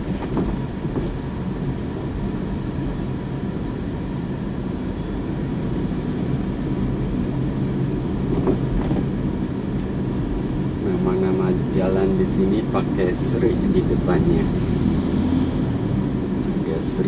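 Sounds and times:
car engine hum: 0:00.0 - 0:17.0.

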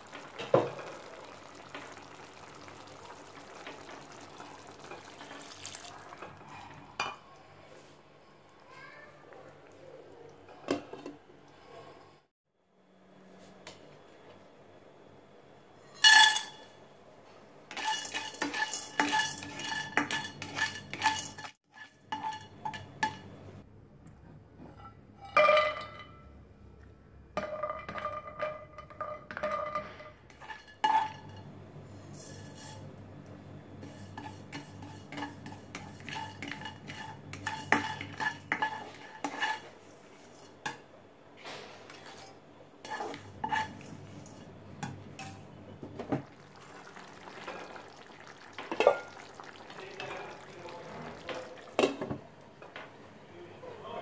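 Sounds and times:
spatula scraping nuts in wok: 0:17.7 - 0:22.5, 0:32.1 - 0:32.8, 0:33.8 - 0:40.6, 0:41.9 - 0:44.6.

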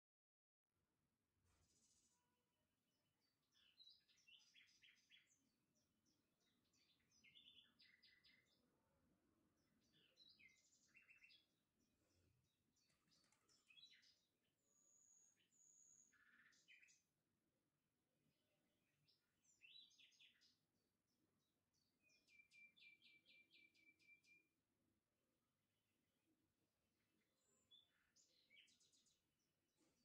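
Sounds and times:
birds chirping and trilling: 0:03.1 - 0:17.3, 0:18.8 - 0:24.6, 0:26.8 - 0:30.0.

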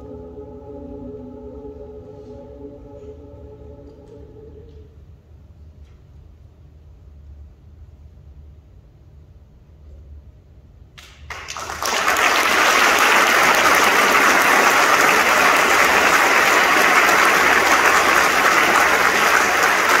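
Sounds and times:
audience applause: 0:11.3 - 0:20.0.

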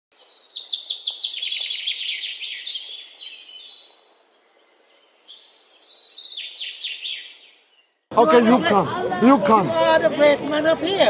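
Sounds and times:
songbird chirping: 0:00.1 - 0:08.9.

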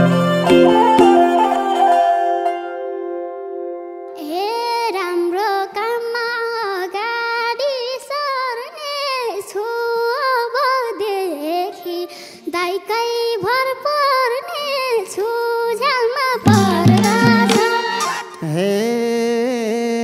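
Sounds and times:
girl singing folk melody: 0:00.0 - 0:02.2, 0:04.1 - 0:17.8.

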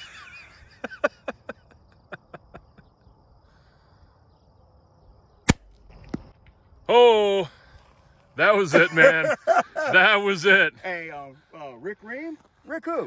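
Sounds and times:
air rifle firing: 0:05.5 - 0:05.7.

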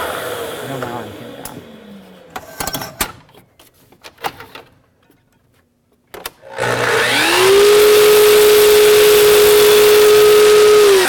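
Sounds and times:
miter saw blade winding down: 0:06.5 - 0:11.0
saw motor whine spinning up: 0:06.5 - 0:11.0.

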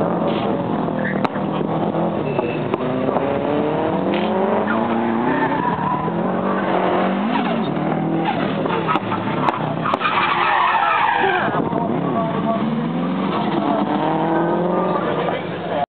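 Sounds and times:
car engine revving: 0:00.0 - 0:15.8
tyre squeal: 0:01.0 - 0:01.3, 0:02.2 - 0:02.8, 0:04.6 - 0:11.6.

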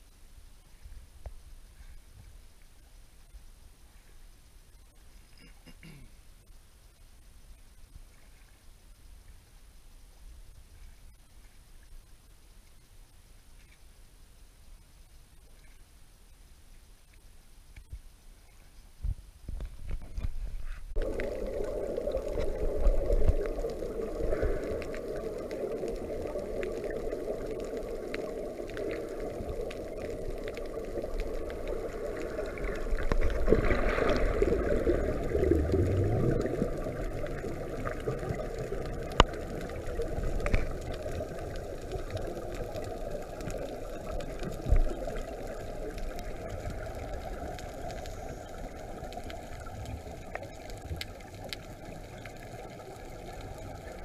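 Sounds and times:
underwater rush with bubbling: 0:19.5 - 0:54.0.

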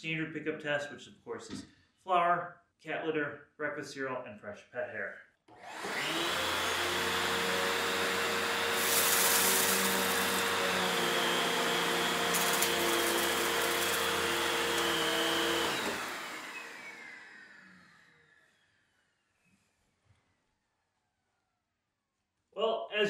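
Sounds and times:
vacuum cleaner running on carpet: 0:05.5 - 0:18.4
vacuum motor spinning down: 0:05.5 - 0:19.0.

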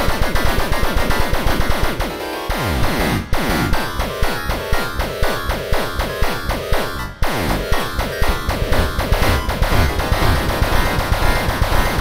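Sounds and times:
dense synthesised midi notes: 0:06.0 - 0:12.0.

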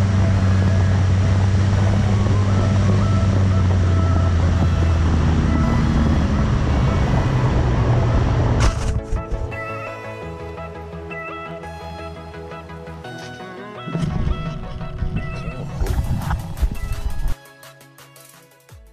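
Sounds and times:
electric motor and propeller droning: 0:00.0 - 0:09.6.

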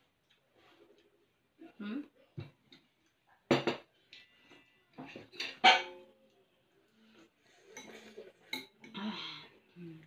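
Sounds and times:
cutlery clinking on ceramic plates: 0:05.0 - 0:06.1.

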